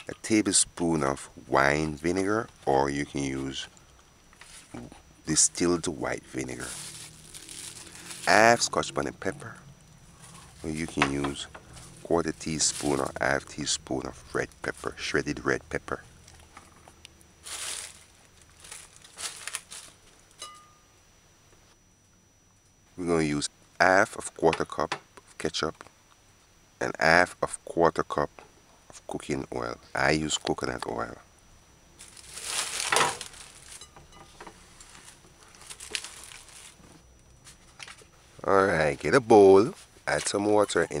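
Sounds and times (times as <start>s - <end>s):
plastic bags crinkling: 6.4s - 8.6s, 17.4s - 20.2s, 32.0s - 33.9s, 34.7s - 36.9s
light clink: 20.4s - 20.8s.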